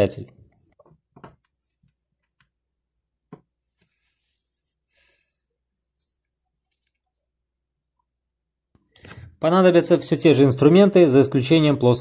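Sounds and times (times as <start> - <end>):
faint breaths: 3.8 - 5.7.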